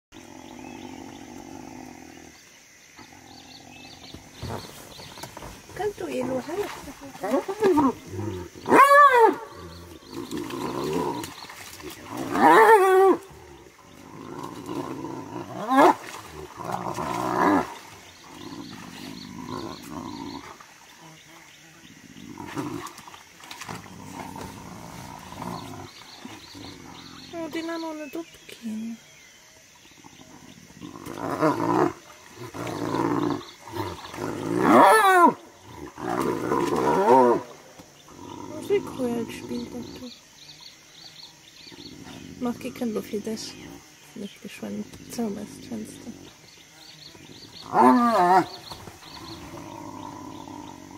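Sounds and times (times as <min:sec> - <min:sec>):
rough low hyena sounds: 0:00.2 - 0:20.7, 0:21.8 - 0:27.9, 0:29.9 - 0:40.1, 0:45.0 - 0:50.9
hyenas calling: 0:47.3 - 0:50.9.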